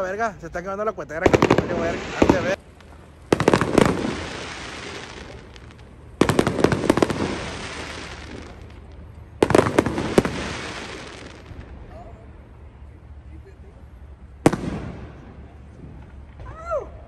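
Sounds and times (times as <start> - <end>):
fireworks bangs and crackles: 0.0 - 17.0.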